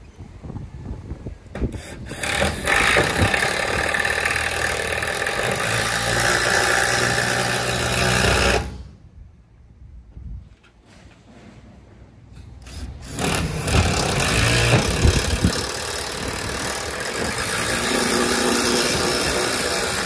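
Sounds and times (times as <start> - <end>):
power drill driving screw into metal: 1.7 - 8.9, 12.6 - 20.0.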